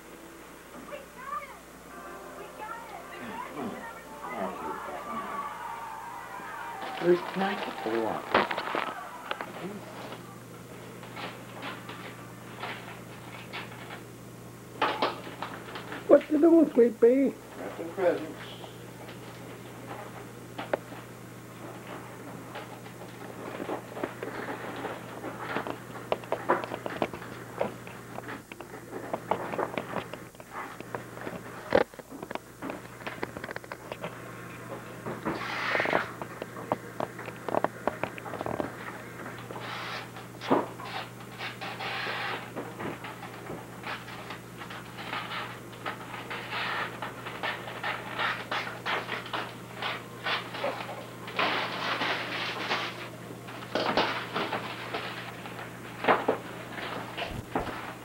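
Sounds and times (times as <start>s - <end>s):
steady low hum: 0.0s - 58.0s
wrapping paper crinkling: 5.4s - 10.2s.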